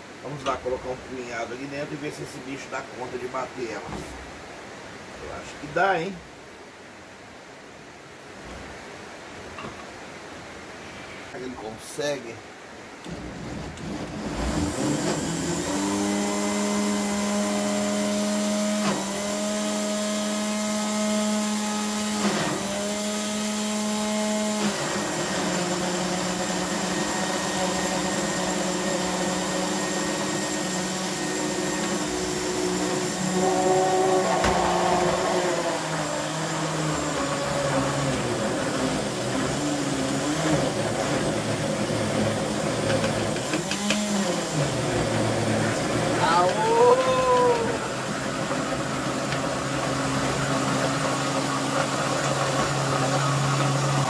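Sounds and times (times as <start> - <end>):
electric blender running: 13.1 - 54.0.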